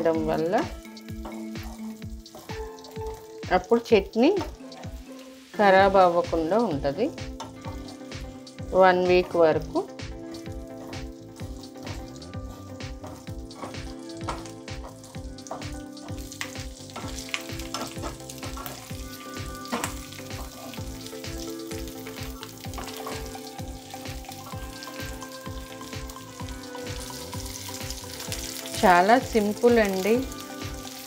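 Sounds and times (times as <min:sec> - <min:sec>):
chillies sizzling in hot oil: 0:00.0 - 0:31.0
spatula scraping a pan: 0:01.2 - 0:02.6, 0:10.3 - 0:19.0.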